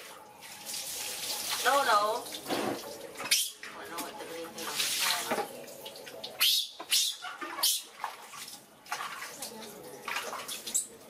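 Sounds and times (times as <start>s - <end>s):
water splashing and dripping: 0.0s - 11.0s.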